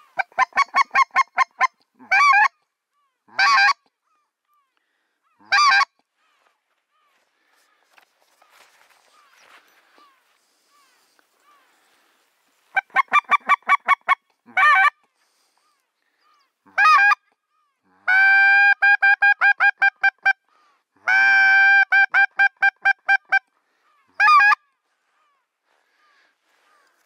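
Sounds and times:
goose call honking: 0.0s - 2.6s, 3.3s - 3.9s, 5.4s - 6.5s, 12.7s - 15.0s, 16.7s - 17.3s, 17.9s - 20.4s, 21.0s - 24.7s.

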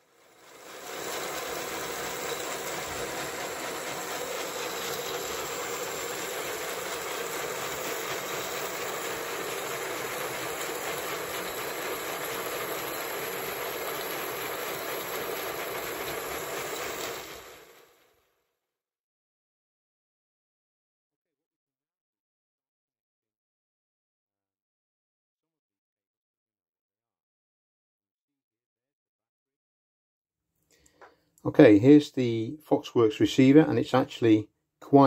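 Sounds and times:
model locomotive exhaust beats: 0.0s - 17.9s
steam hiss: 0.0s - 17.9s.

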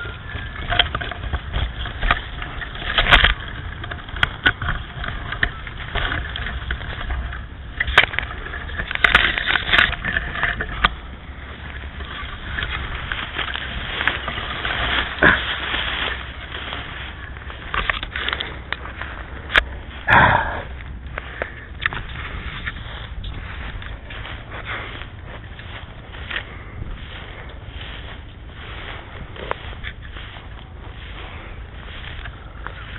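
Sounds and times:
wind buffeting microphone: 0.0s - 32.9s.

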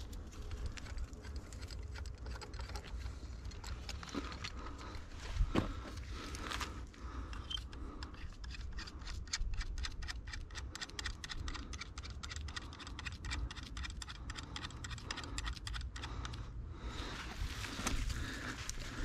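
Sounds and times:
ratchet clicking: 7.4s - 16.1s.

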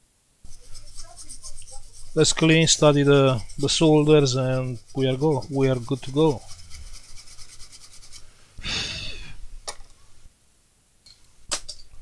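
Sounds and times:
scratchy rubbing: 0.4s - 8.3s
breathy exhale: 8.5s - 9.4s.

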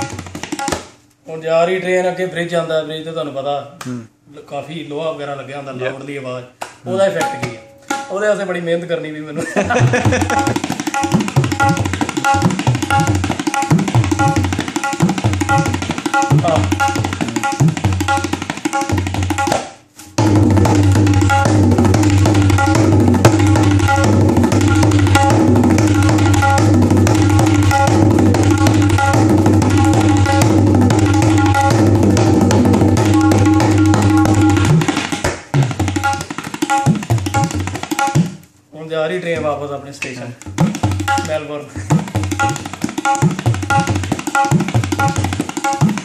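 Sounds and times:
tabla drumming: 0.0s - 1.0s, 6.9s - 8.4s, 9.6s - 38.5s, 40.1s - 46.0s
booming bass drum: 20.2s - 34.9s.

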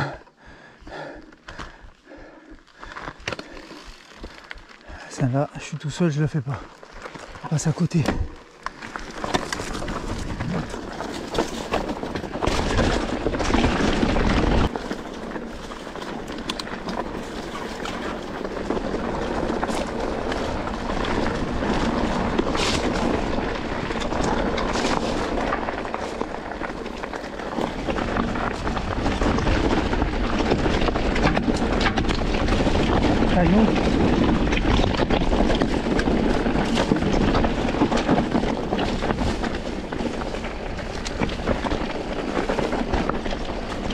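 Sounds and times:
tyres rolling over dirt and stones: 0.0s - 43.9s
bike rattling and knocking: 0.9s - 43.9s
wind rumble on microphone: 17.5s - 43.9s.

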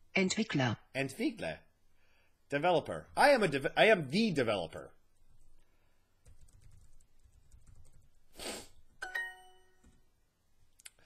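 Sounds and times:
soft keyboard typing: 6.2s - 8.2s, 9.0s - 10.1s
bright correct-answer chime: 9.0s - 9.8s.

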